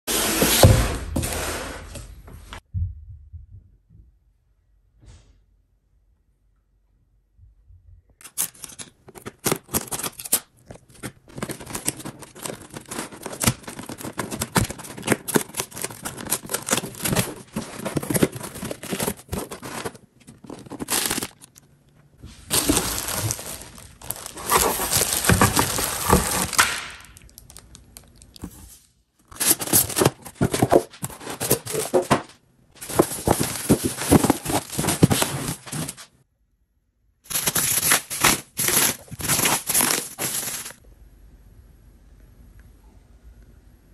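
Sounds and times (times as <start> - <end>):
packaging tearing and crinkling: 8.2 - 21.6, 22.5 - 28.6, 29.3 - 36.1, 37.3 - 40.8.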